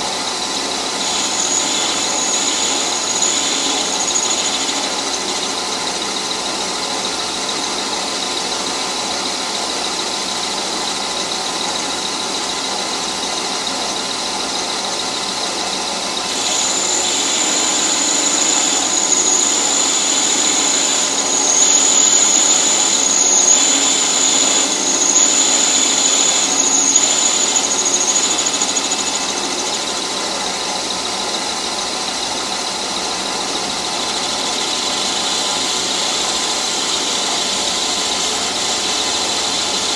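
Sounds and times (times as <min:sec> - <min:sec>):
high-pitched cutting squeal: 0:00.0 - 0:39.9
metal lathe running: 0:00.0 - 0:39.9.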